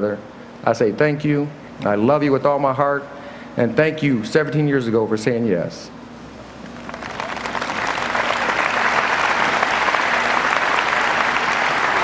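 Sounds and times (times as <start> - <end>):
audience applause: 6.7 - 12.0.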